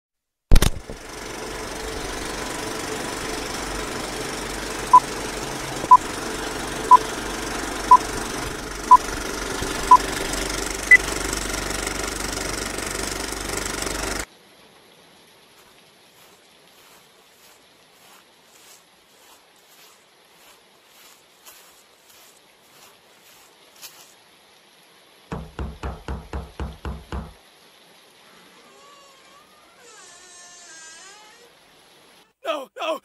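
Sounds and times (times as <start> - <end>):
film projector clatter: 0.5 - 14.3.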